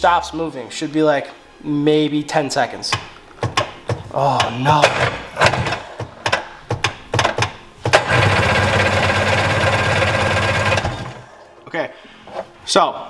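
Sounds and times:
engine cranking on electric starter: 7.9s - 11.3s.

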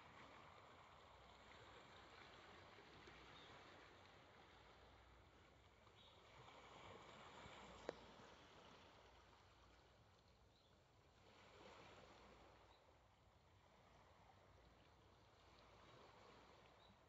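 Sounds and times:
small waves lapping: 0.0s - 17.0s.

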